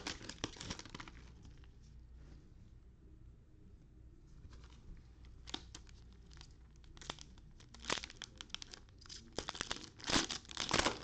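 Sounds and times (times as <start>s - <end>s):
wrappers crinkling and tearing: 0.0s - 1.3s, 5.4s - 11.0s.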